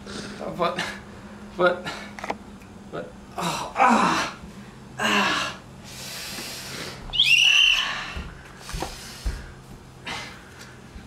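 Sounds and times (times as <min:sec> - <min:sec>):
breathy hiss: 0:05.0 - 0:07.1.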